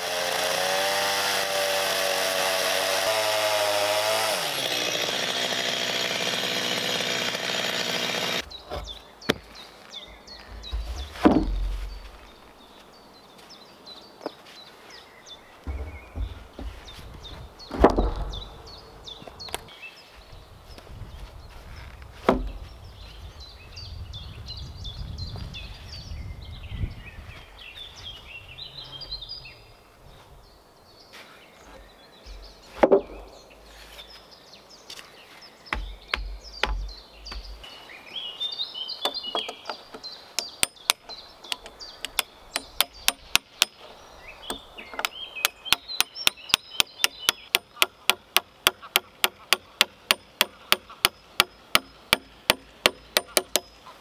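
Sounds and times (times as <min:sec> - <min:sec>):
birds singing: 0:03.4 - 0:54.0
heavy wooden knocks: 0:10.5 - 0:11.9, 0:15.6 - 0:18.4, 0:22.2 - 0:22.6, 0:35.7 - 0:37.6, 0:45.7 - 0:53.7
hammer striking nail: 0:35.7 - 0:37.5, 0:42.0 - 0:43.8, 0:45.7 - 0:53.7.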